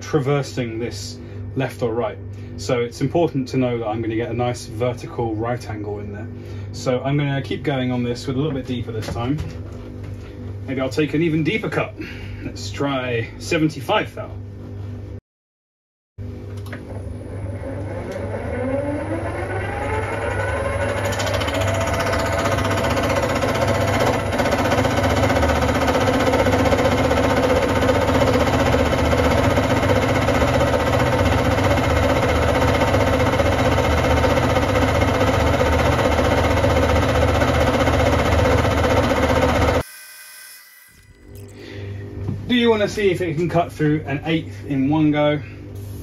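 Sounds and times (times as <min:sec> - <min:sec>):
milling machine motor whine: 0:16.6 - 0:42.4.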